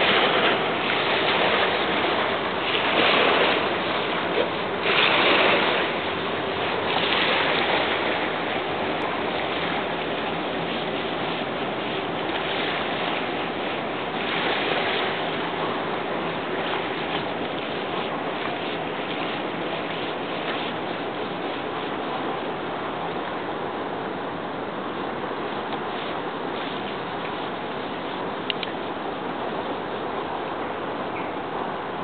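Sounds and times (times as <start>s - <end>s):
river waves washing onto shore: 0.0s - 32.0s.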